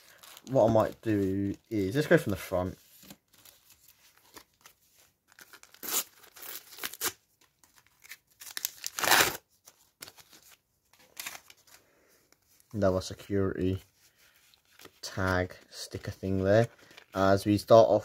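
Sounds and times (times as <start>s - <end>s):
wrapper tearing: 5.3s - 9.4s
wrapper crinkling: 5.3s - 11.8s.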